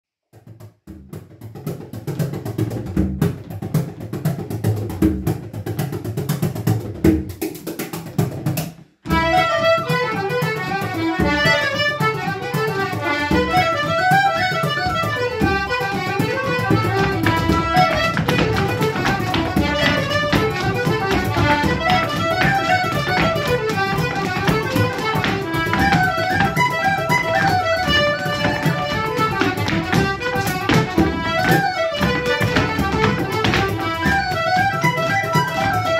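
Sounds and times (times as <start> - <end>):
dance shoes beating on wooden floor: 0.4 - 35.9
accordion whistle and fiddle dance tune: 9.1 - 35.9.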